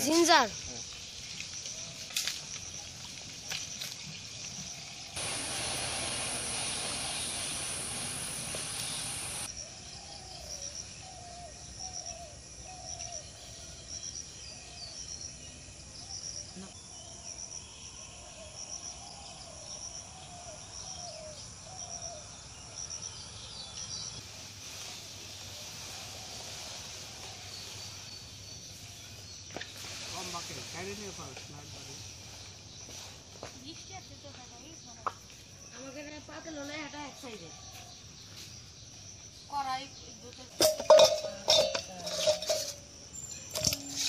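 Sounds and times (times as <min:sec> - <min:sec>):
insects trilling: 0:00.0 - 0:44.0
loud even hiss: 0:05.1 - 0:09.5, 0:29.6 - 0:32.3.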